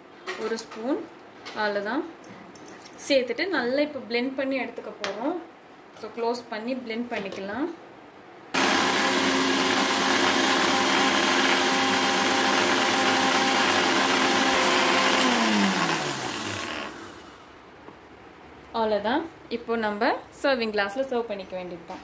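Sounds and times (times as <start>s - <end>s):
electric blender running: 8.6s - 17.4s.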